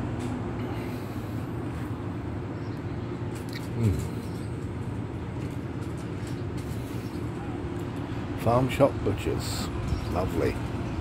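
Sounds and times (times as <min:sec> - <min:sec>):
machinery hum: 0:00.0 - 0:11.0
street traffic hum: 0:00.0 - 0:11.0.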